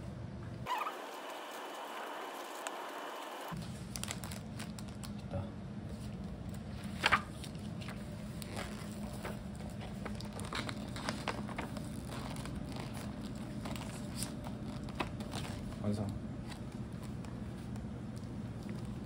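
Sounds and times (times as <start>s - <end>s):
cellophane crinkling: 3.6s - 5.3s, 6.8s - 19.0s.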